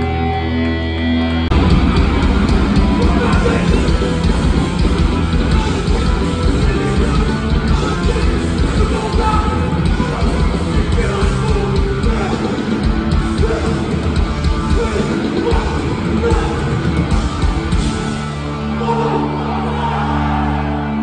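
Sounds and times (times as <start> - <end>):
distorted guitars: 0.0 - 21.0
pounding drums: 1.5 - 18.4
shouted vocals: 18.6 - 21.0.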